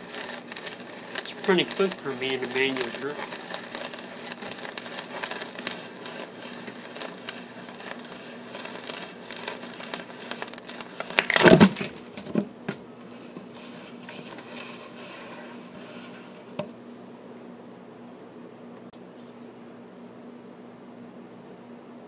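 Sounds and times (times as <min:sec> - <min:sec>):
auger bit cutting wood: 0:00.0 - 0:11.8.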